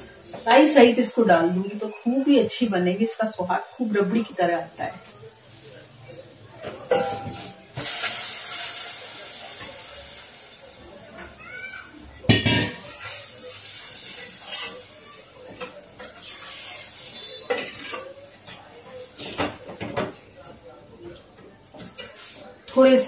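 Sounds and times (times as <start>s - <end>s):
milk sizzling in a hot pan: 0.0s - 20.2s
steel pot clanking: 6.9s - 7.9s.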